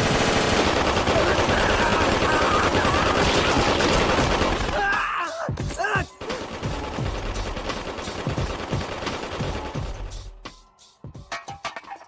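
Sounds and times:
submachine gun automatic fire: 0.0s - 4.9s, 6.2s - 10.1s
man yelling: 1.1s - 3.5s, 4.7s - 6.2s.

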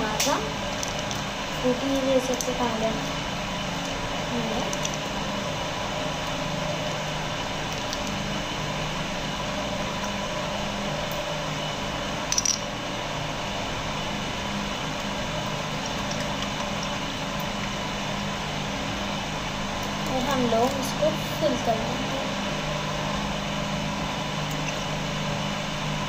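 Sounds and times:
room hum: 0.0s - 26.0s.

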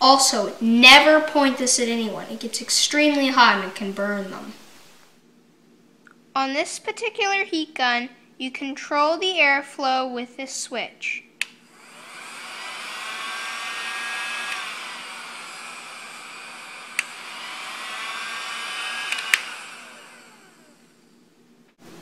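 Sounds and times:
heat gun fan whirring: 11.3s - 22.0s
switch click: 19.1s - 19.5s.

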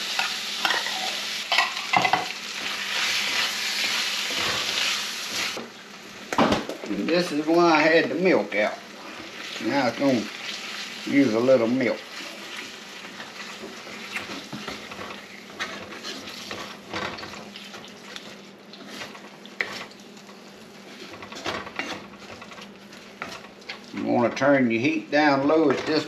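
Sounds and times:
sauce simmering and sizzling: 0.0s - 24.0s
wooden spoon scraping a pan: 0.2s - 5.6s, 7.3s - 26.0s.

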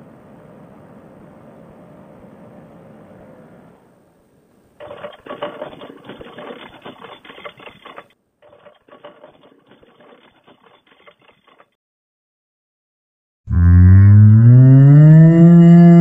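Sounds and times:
mechanical rattle over hum: 4.8s - 11.8s.

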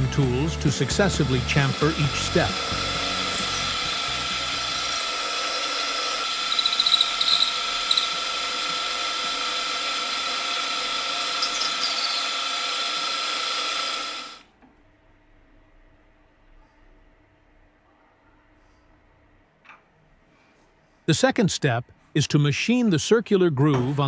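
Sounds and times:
milling machine whining: 0.0s - 14.4s
cutter squealing: 0.6s - 14.4s.

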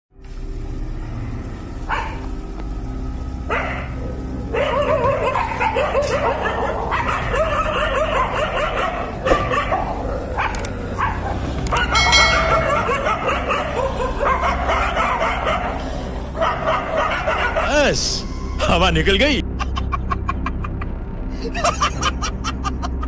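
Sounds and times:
dogs barking and snarling: 1.0s - 18.6s.

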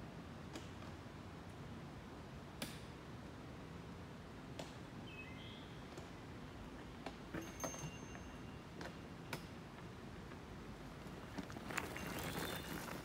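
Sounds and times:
high bird calls: 12.0s - 13.0s.

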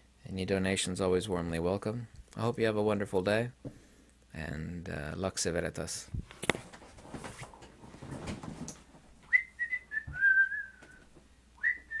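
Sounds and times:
rustling: 6.2s - 9.4s
person whistling a tune: 9.3s - 11.0s, 11.6s - 12.0s.

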